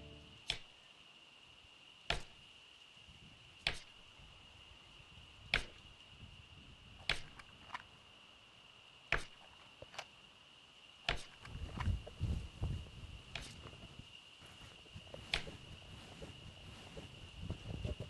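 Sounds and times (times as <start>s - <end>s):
steady thin high tone: 0.0s - 0.4s.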